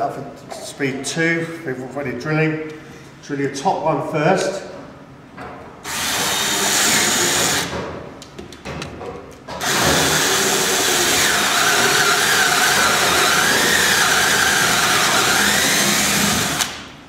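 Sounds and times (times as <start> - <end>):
cordless drill boring into wood: 5.9 - 7.7, 9.6 - 16.8.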